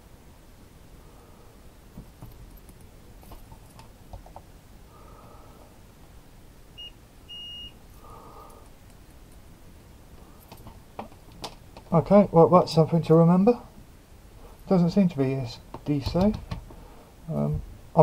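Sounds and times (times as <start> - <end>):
probe leads clicking and rustling: 1.9 - 4.5, 10.2 - 12.0, 15.6 - 16.8
multimeter beeping: 6.8 - 7.8.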